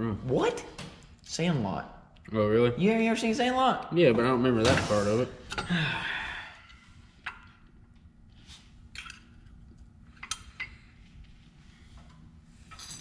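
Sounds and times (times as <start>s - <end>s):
metal parts clicking and tapping: 10.2s - 10.8s.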